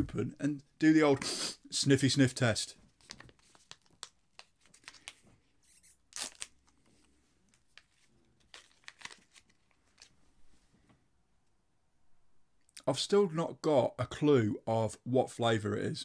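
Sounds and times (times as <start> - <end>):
sachet tearing and crinkling: 3.0 - 6.8, 7.5 - 10.2.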